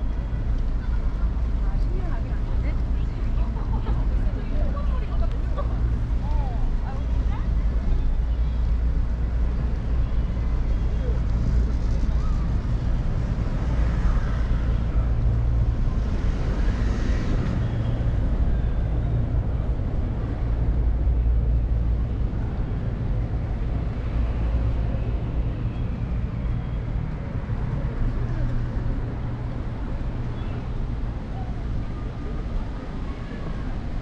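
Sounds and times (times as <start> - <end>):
low rumble of traffic: 0.0 - 34.0
vehicle passing by: 10.8 - 20.8.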